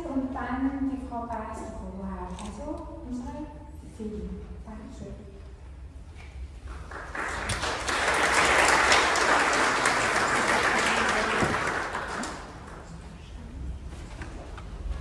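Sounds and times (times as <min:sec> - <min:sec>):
audience applauding: 0:06.7 - 0:13.1.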